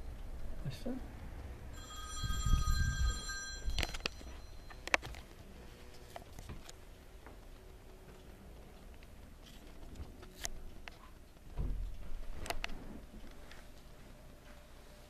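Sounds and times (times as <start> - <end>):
electronic ringing tone: 1.8 - 5.0.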